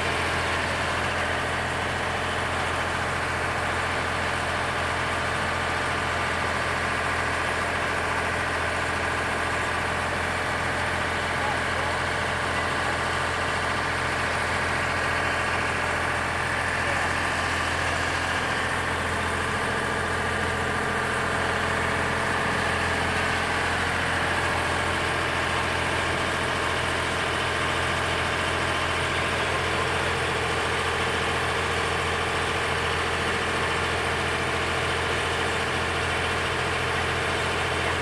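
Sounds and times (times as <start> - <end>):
boat engine droning: 8.4 - 38.0.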